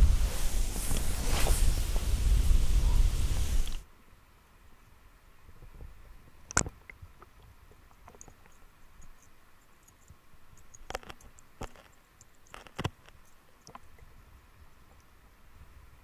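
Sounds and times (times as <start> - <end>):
sharp underwater clicks and knocks: 6.5 - 14.1
faint high ticking: 7.8 - 15.1.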